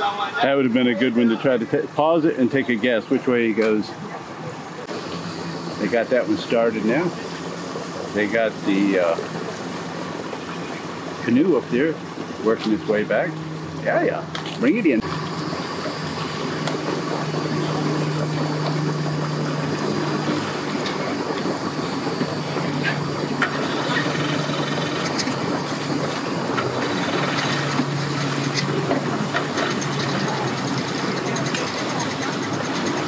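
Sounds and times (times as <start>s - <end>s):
boat engine idling: 0.0s - 33.0s.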